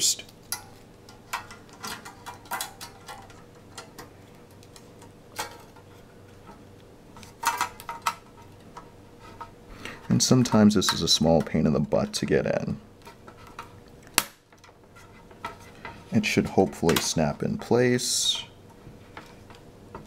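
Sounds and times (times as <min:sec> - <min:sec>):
thin metal clicking and clattering: 0:00.4 - 0:06.6, 0:07.2 - 0:09.5.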